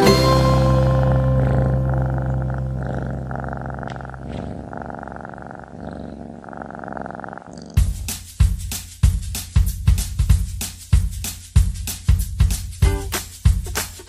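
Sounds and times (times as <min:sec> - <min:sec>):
background music: 0:00.0 - 0:02.4, 0:12.7 - 0:14.0
cat purring: 0:00.0 - 0:08.1.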